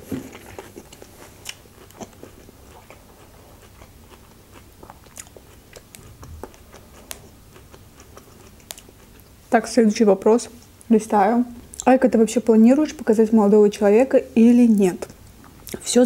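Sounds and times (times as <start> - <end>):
person chewing: 0.0 - 9.4.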